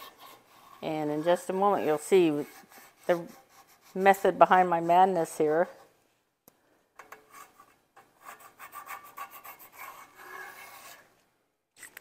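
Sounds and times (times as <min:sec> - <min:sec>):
pencil scratching on paper: 0:00.0 - 0:05.2, 0:07.3 - 0:11.1.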